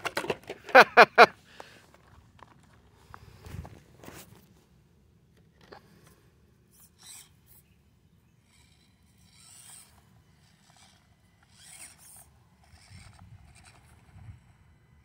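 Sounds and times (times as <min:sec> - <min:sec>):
small electric motor whirring: 0:05.6 - 0:15.0.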